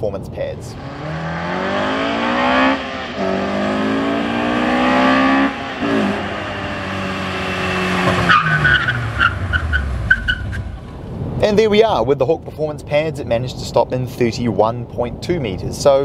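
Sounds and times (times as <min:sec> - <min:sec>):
car engine accelerating: 0:00.7 - 0:11.4.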